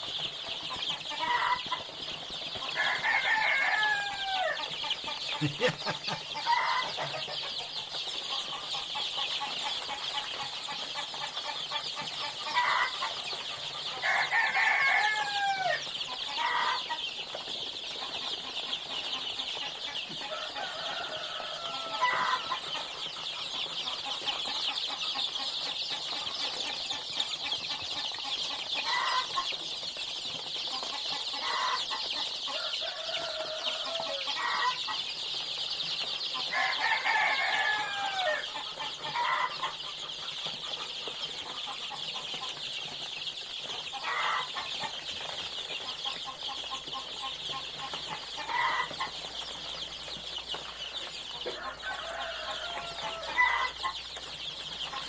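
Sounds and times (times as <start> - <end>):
chicks peeping: 0.0 - 55.0
louder lower chick calls: 2.7 - 7.5.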